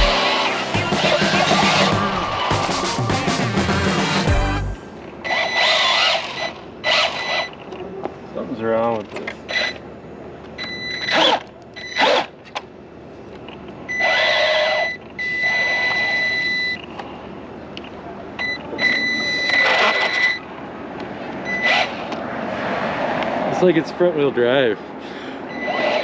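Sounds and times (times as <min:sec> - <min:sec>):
electric motor whining: 0:00.0 - 0:03.2
gritty gear noise: 0:00.0 - 0:07.7, 0:11.0 - 0:12.5, 0:13.9 - 0:16.3, 0:19.4 - 0:20.4, 0:21.5 - 0:22.3, 0:25.5 - 0:26.0.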